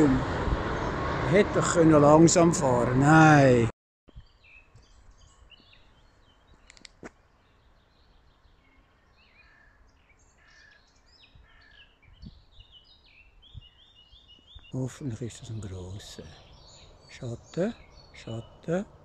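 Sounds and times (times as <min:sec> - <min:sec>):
songbirds chirping and singing: 0:04.1 - 0:19.0
sharp clicks: 0:06.6 - 0:07.1.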